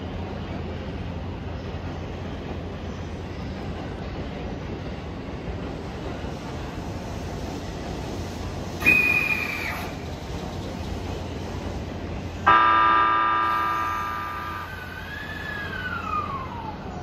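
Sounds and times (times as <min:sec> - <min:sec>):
train rumbling at platform: 0:00.0 - 0:17.0
short high whistle: 0:08.8 - 0:10.0
train horn blast: 0:12.5 - 0:14.8.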